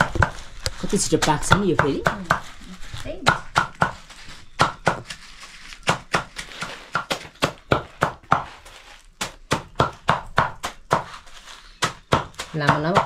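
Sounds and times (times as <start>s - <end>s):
blade chopping plant stalks: 5.8s - 13.0s.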